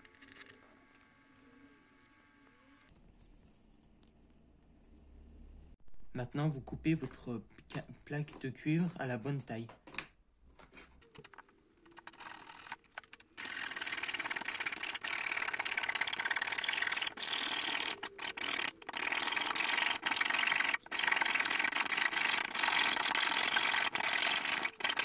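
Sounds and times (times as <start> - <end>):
blade scraping circuit board: 11.1 - 25.0.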